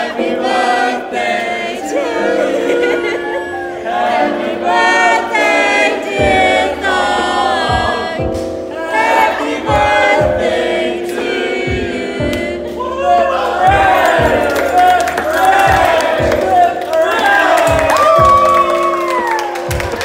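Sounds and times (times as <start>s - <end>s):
men singing in harmony: 0.0s - 17.9s
low thudding beat: 6.1s - 19.0s.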